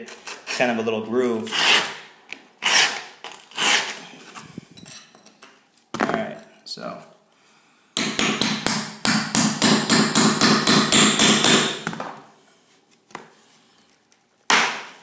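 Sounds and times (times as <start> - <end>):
grout saw scraping: 2.6 - 5.1.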